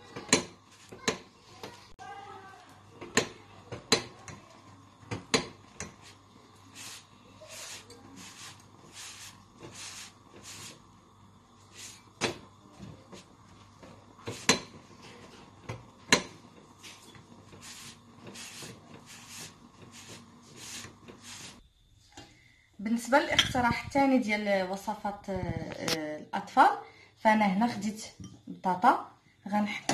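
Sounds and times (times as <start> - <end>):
cloth swishing on flatbread: 17.6 - 21.6.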